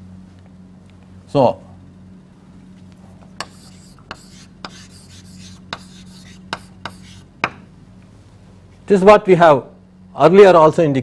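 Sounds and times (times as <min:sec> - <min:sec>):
low electrical hum: 0:00.0 - 0:11.0
pen scratching on paper: 0:03.4 - 0:07.2.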